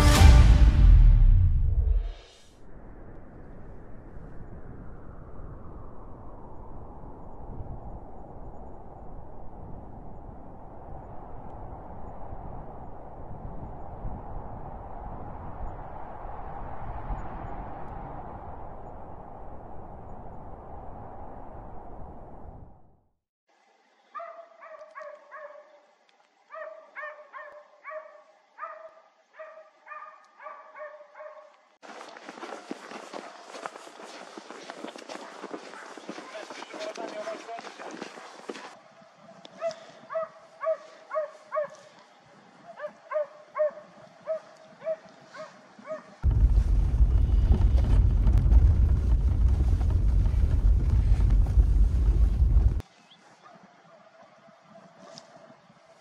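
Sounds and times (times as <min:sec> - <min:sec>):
dogs barking: 0:24.2 - 0:25.8, 0:26.5 - 0:31.5, 0:39.1 - 0:41.9, 0:42.7 - 0:46.2
footsteps crunching in snow: 0:31.8 - 0:38.8, 0:46.2 - 0:53.5
engine and tyre rumble: 0:46.2 - 0:52.8
knocks and rattles from rough road: 0:46.2 - 0:52.8.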